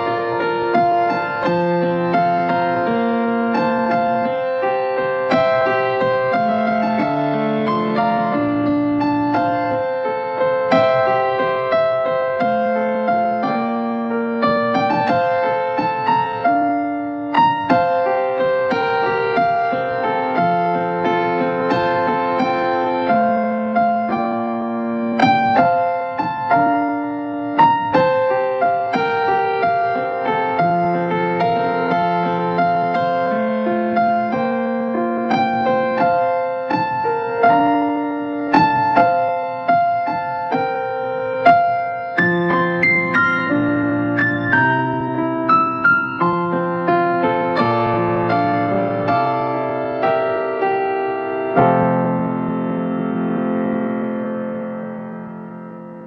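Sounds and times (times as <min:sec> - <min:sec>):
electric piano chords: 0:00.0 - 0:56.0
slow keyboard melody: 0:00.0 - 0:56.0.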